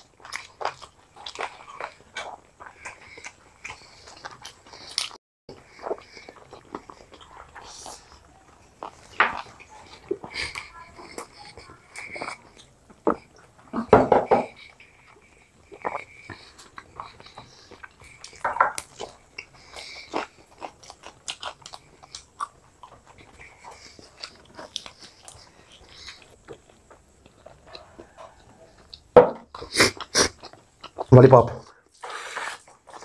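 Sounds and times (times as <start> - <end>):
crunching and chewing food: 0.0 - 33.0.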